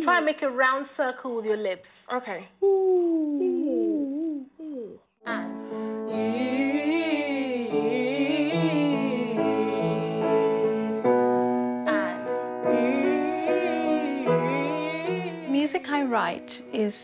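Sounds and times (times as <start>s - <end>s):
sustained piano chords: 5.3s - 17.0s.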